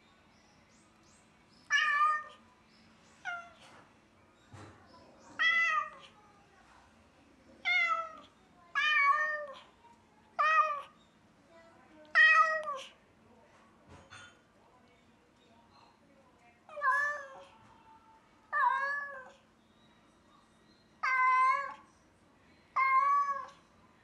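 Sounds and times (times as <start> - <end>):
cat meowing mournfully: 18.5 - 19.3, 21.0 - 21.8, 22.8 - 23.6.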